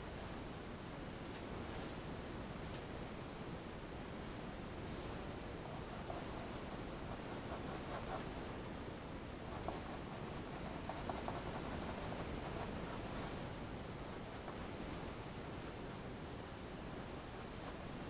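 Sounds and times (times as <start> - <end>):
low room hiss: 0.0 - 18.0
pencil scratching on paper: 9.6 - 12.8.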